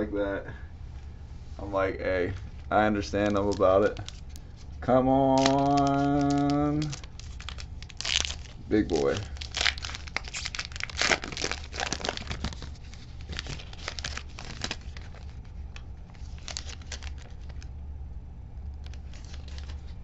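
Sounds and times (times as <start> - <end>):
foil wrapper tearing and crinkling: 3.0 - 17.7, 18.8 - 20.0.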